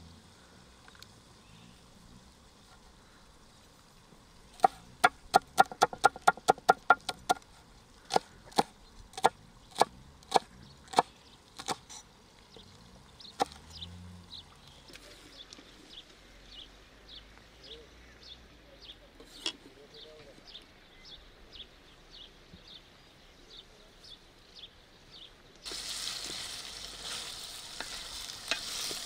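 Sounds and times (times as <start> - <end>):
knife chopping on wooden board: 4.6 - 7.4.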